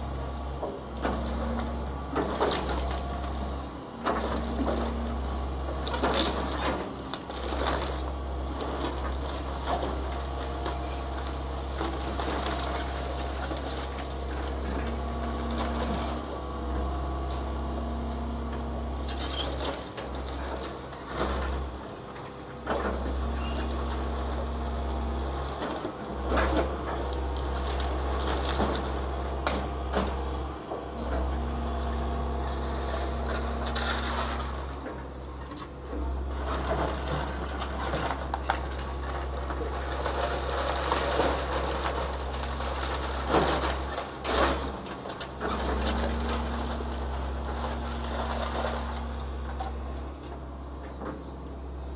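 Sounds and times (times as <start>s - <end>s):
excavator diesel engine: 0.0s - 51.9s
debris cracking and crunching: 5.7s - 16.3s, 23.4s - 29.8s, 36.2s - 50.1s.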